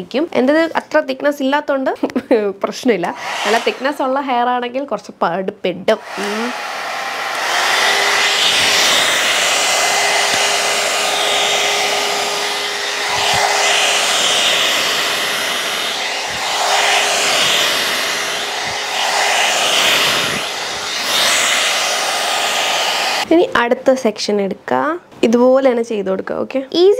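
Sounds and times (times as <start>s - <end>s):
hot-air brush blowing: 3.1s - 4.4s, 6.0s - 23.3s
steady hum: 6.6s - 23.2s.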